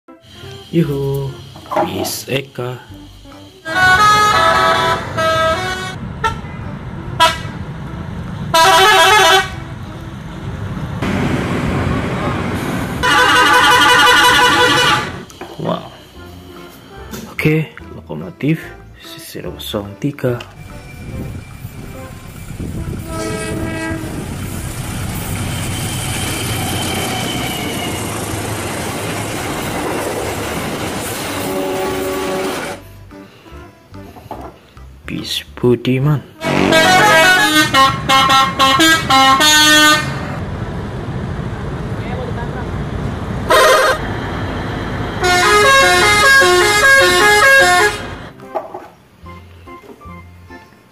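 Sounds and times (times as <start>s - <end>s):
bus engines rumbling: 0.1s - 50.9s
bus musical horns: 3.1s - 10.5s, 12.3s - 17.3s, 20.6s - 25.3s, 31.3s - 33.0s, 36.3s - 40.4s, 43.4s - 48.4s
train wheels on rails: 20.4s - 32.8s
faint high squeal: 20.5s - 23.0s, 25.2s - 28.3s.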